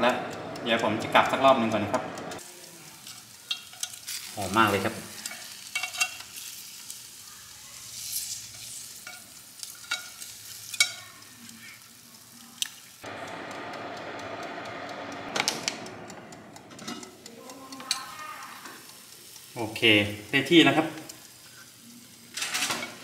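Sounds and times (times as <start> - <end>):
oven fan running: 0.0 - 2.4, 13.0 - 21.3
faint sizzling: 0.0 - 23.0
metal tongs clicking on wire rack: 16.6 - 19.5.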